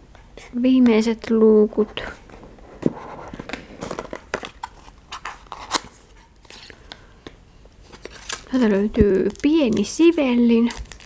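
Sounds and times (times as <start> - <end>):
cardboard clicking and crackling: 7.9 - 11.0.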